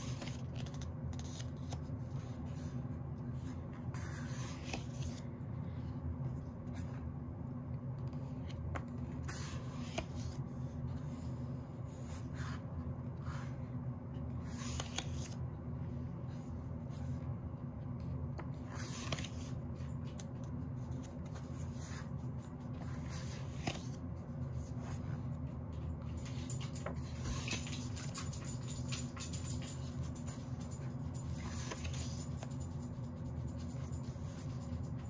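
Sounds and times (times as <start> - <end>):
pages being turned: 0.0 - 5.4, 8.0 - 15.5, 18.4 - 29.2, 31.3 - 35.0.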